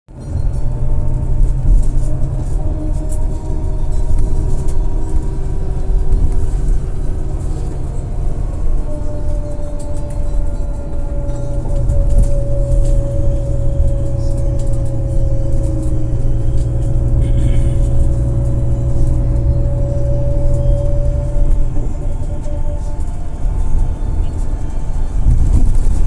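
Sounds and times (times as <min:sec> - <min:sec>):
engine and tyre rumble: 0:00.1 - 0:26.0.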